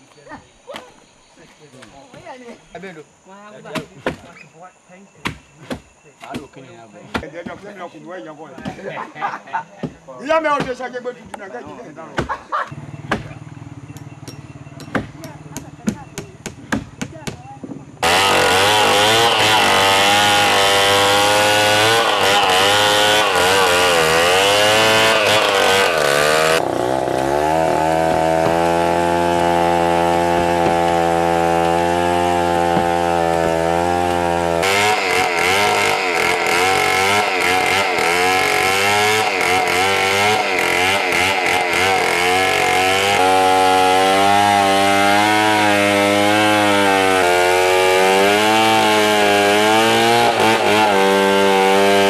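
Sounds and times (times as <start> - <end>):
chainsaw cutting log: 18.0 - 52.0.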